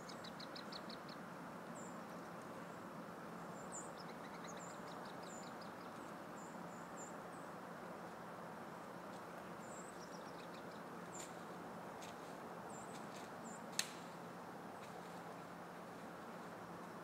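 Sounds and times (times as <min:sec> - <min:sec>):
faint ticks and rustles: 0:00.0 - 0:07.0, 0:07.8 - 0:17.0
sharp click: 0:13.7 - 0:14.1.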